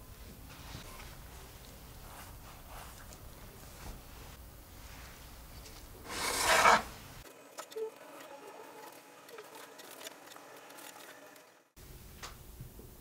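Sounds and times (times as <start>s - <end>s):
baking tray scraping: 6.0s - 7.2s.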